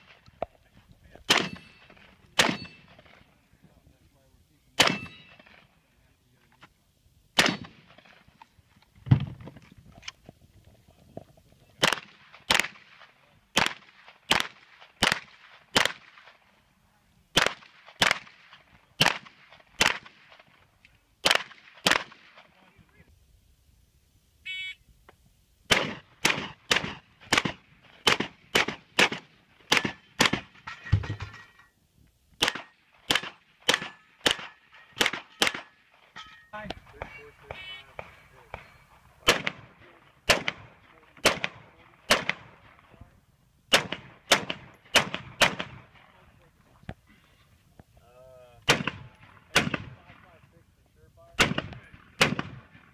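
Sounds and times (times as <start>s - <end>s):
gunshots: 1.2s - 3.3s, 4.8s - 5.7s, 7.4s - 8.3s, 11.8s - 16.5s, 17.3s - 20.6s, 21.2s - 22.6s, 25.7s - 31.3s, 32.4s - 35.8s, 36.6s - 43.0s, 43.7s - 46.2s, 48.6s - 50.4s, 51.4s - 52.9s.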